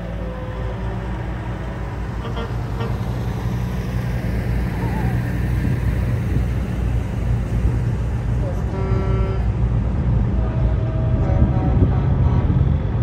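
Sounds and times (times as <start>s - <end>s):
heavy truck engine rumbling: 0.0s - 13.0s.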